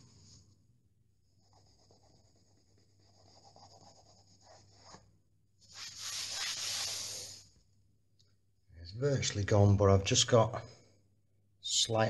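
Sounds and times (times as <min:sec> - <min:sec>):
cloth rubbing on a wall: 0:01.4 - 0:07.5.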